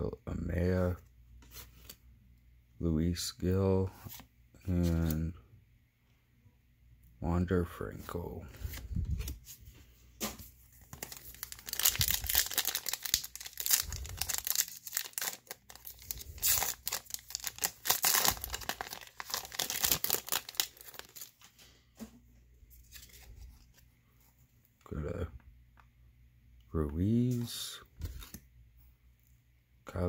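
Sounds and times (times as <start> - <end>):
wrapper ripping and crinkling: 10.8 - 21.5.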